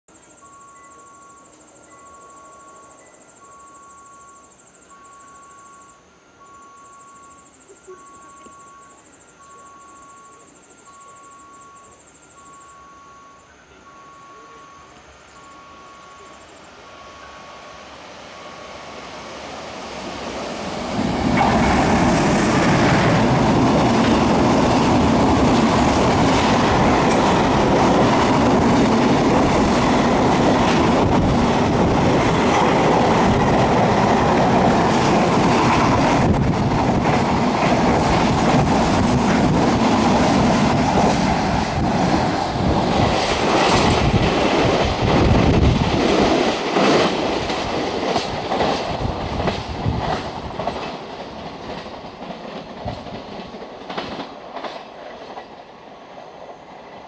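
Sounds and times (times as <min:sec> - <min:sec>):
freight train wagons rushing past: 0:13.8 - 0:57.0.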